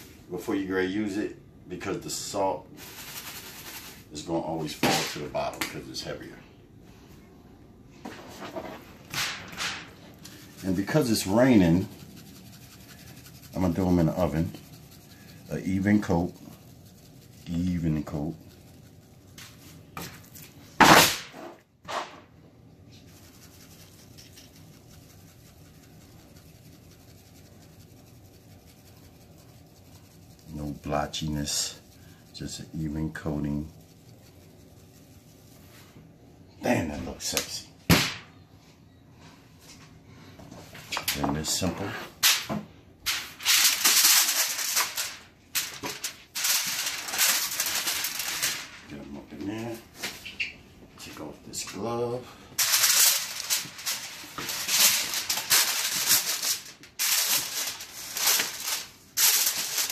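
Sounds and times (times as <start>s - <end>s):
seasoning shaker swishes: 2.1s - 6.2s, 8.1s - 20.8s, 22.8s - 37.7s, 43.2s - 48.8s, 52.6s - 59.9s
aluminium foil crinkling: 2.8s - 4.2s, 10.0s - 20.7s, 23.0s - 35.9s, 43.5s - 48.8s, 52.6s - 59.9s
granules pattering on meat: 10.0s - 20.7s, 22.9s - 35.9s.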